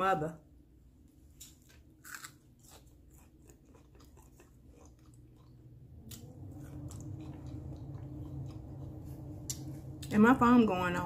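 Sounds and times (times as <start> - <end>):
crunchy chewing: 1.4 - 10.1
low hum: 4.3 - 11.0.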